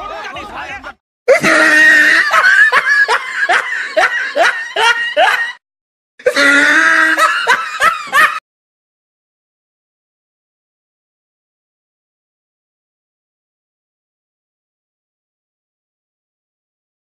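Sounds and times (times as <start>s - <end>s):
rhythmic laughter: 1.6s - 5.6s, 6.2s - 8.4s.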